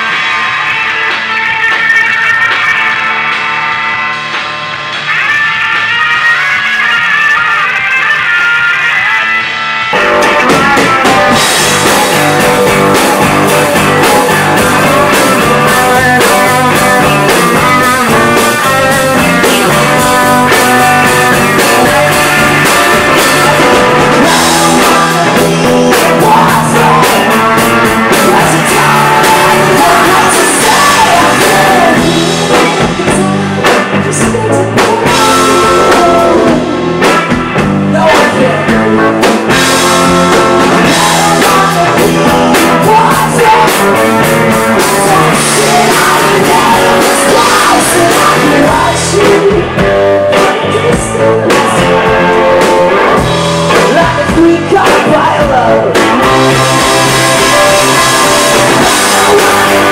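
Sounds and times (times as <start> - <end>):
drum kit: 0.0 - 59.9
electric guitars: 0.0 - 59.9
person singing: 5.7 - 59.9.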